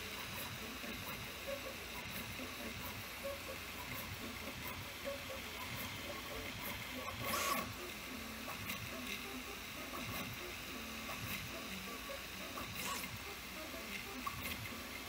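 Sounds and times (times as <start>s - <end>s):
printer motors chirping: 0.0s - 15.0s.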